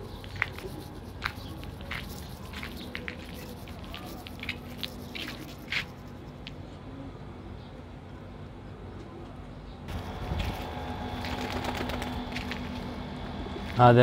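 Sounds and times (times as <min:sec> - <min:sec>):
footsteps crunching on concrete: 0:00.1 - 0:06.0, 0:10.2 - 0:11.5, 0:12.3 - 0:12.9.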